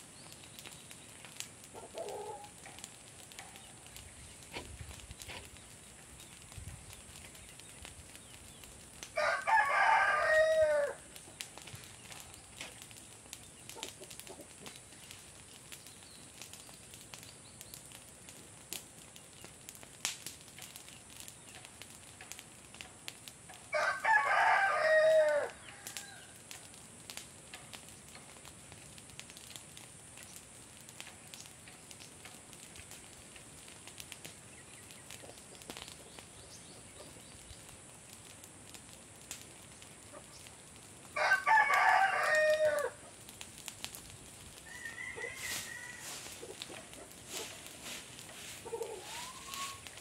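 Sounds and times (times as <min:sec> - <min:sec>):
rooster crowing: 0:01.8 - 0:02.5, 0:09.2 - 0:11.1, 0:23.7 - 0:26.4, 0:41.2 - 0:43.0, 0:44.6 - 0:46.6, 0:48.6 - 0:49.8.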